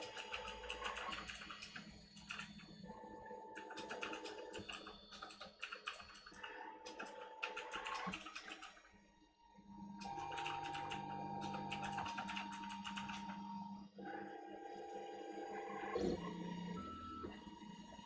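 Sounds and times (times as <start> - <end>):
printer stepper motors clicking: 0.0 - 2.8, 3.6 - 8.8, 10.0 - 13.6.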